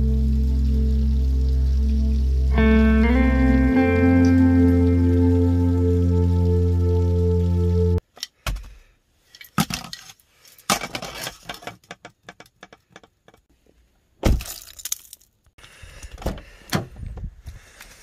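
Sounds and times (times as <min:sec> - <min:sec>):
plastic items clicking and clattering: 0:09.3 - 0:13.4.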